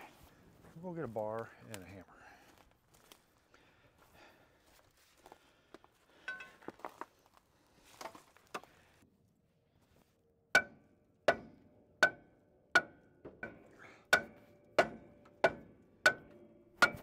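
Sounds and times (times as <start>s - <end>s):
hammer blows ringing on steel: 10.6s - 17.0s.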